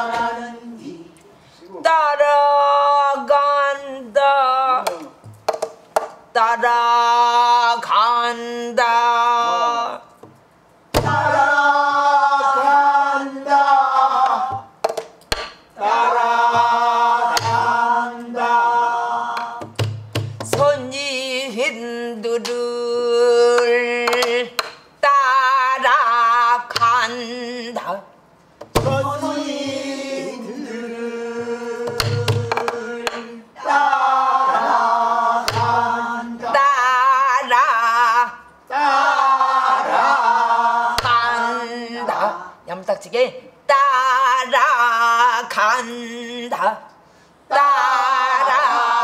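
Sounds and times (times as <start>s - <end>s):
woman singing with vibrato: 0.0s - 1.2s, 1.9s - 5.2s, 6.4s - 10.0s, 20.5s - 28.2s, 35.2s - 39.5s
barrel drum thumps and knocks: 11.0s - 11.3s, 19.6s - 20.8s, 28.6s - 29.1s, 31.9s - 33.2s.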